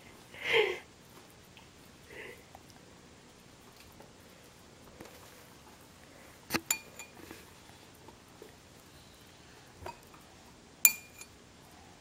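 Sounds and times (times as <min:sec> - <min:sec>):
spoon clinking on ceramic bowl: 0:06.7 - 0:07.2, 0:10.9 - 0:11.4.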